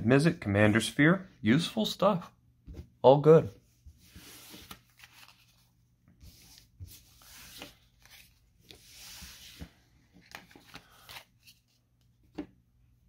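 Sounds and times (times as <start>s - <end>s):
cards sliding and rustling: 3.9s - 12.4s.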